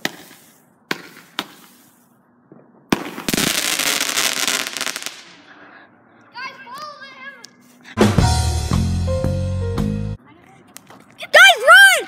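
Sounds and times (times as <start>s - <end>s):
firework crackling: 0.0s - 2.2s, 2.8s - 5.5s
firework bangs: 0.0s - 5.5s.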